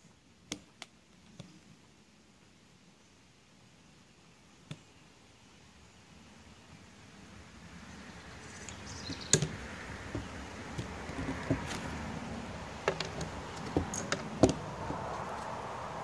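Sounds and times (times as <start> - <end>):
trekking poles clicking and knocking: 8.7 - 15.7.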